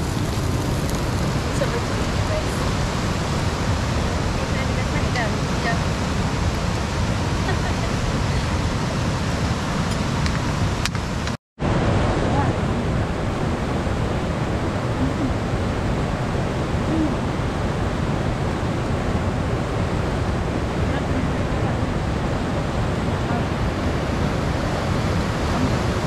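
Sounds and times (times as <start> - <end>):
river rushing: 0.0 - 26.0.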